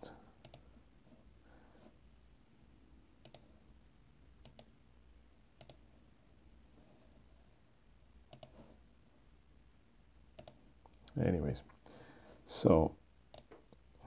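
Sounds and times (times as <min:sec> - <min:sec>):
low steady hum: 0:00.0 - 0:14.0
computer mouse clicks: 0:00.4 - 0:00.7, 0:03.2 - 0:03.5, 0:04.4 - 0:04.7, 0:05.6 - 0:05.8, 0:08.3 - 0:08.7, 0:10.3 - 0:11.2, 0:13.3 - 0:13.8.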